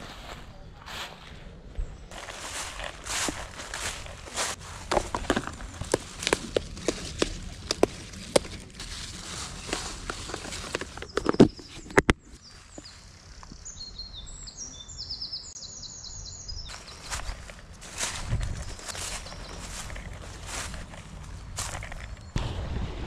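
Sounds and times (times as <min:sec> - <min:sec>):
songbirds chirping: 0:00.0 - 0:22.4
leaves snapping and rustling: 0:02.1 - 0:13.5, 0:16.7 - 0:22.3.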